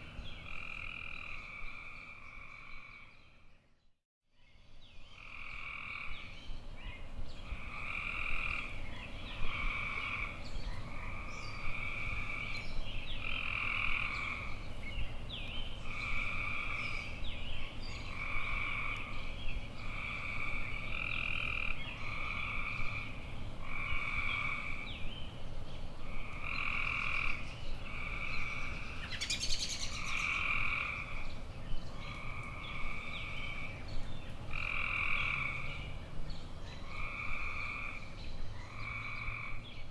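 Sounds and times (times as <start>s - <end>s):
frogs calling: 0.0s - 3.1s, 7.5s - 8.8s, 9.4s - 14.6s, 15.8s - 17.2s, 18.0s - 19.1s, 19.8s - 24.9s, 26.0s - 31.3s, 31.9s - 33.8s, 34.5s - 35.9s, 36.8s - 39.6s.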